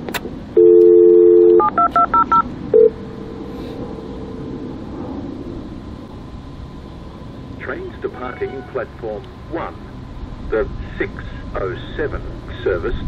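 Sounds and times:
low steady hum: 0.0s - 13.0s
keypad beeps: 0.6s - 2.9s
telephone dial tone: 0.6s - 2.9s.

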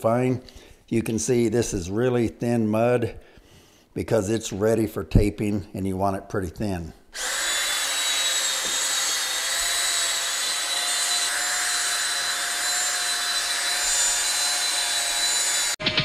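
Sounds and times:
drill motor whine: 7.2s - 15.8s.

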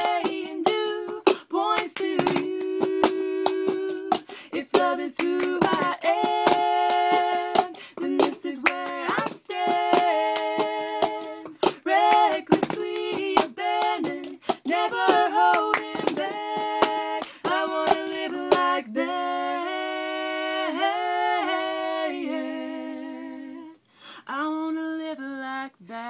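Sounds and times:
plastic cups tapped on floor: 0.0s - 18.7s
hands clapping: 0.0s - 18.8s
two women singing: 0.0s - 26.0s.

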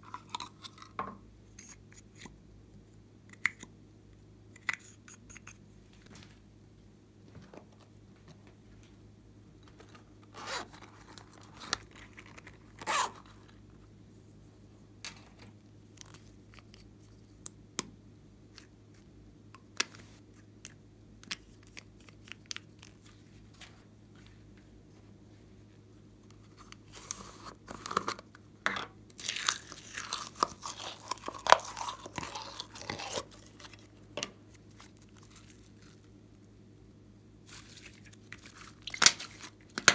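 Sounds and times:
slime crackling and squishing: 29.2s - 36.1s.

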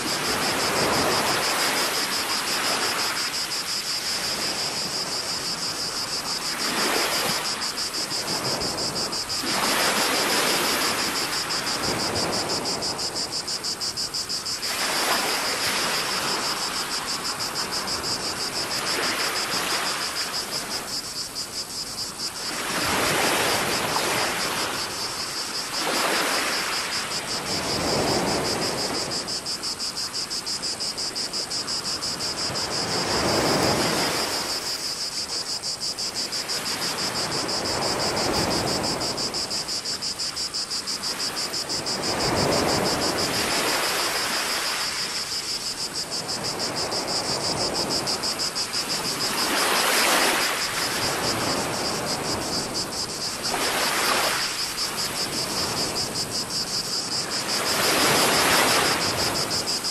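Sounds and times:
cicadas buzzing: 0.0s - 59.9s
waves washing on rocky shore: 36.4s - 59.9s.

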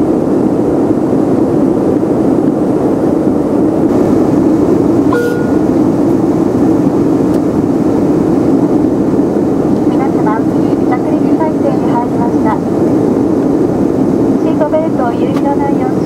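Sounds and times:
airplane cabin engine rush: 0.0s - 16.0s
short cabin tone: 5.1s - 5.8s.

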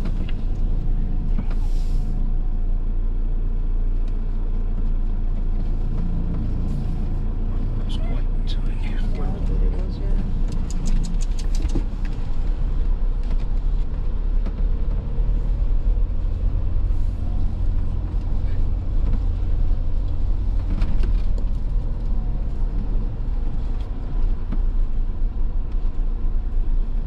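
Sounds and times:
engine and road rumble: 0.0s - 27.0s
light clicks and rattles: 9.2s - 14.8s.

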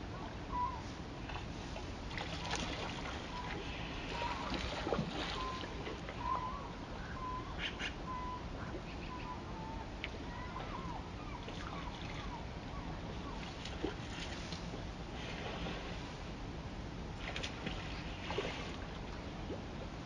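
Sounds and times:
water splashes: 2.0s - 6.2s, 17.2s - 19.9s
short bird calls: 5.3s - 13.4s.

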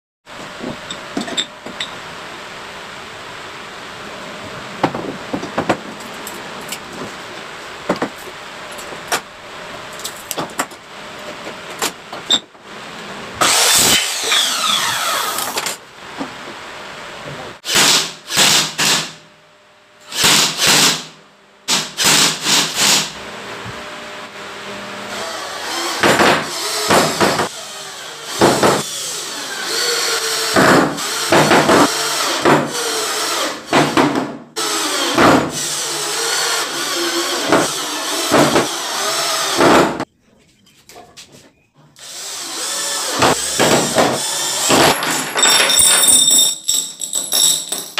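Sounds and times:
cordless drill whining: 13.4s - 15.6s, 42.0s - 43.2s
glass jars clinking on wood: 45.0s - 47.9s.

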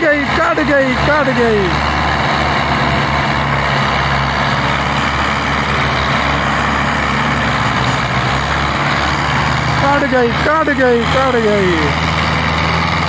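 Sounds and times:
tractor diesel engines straining: 0.0s - 13.0s.

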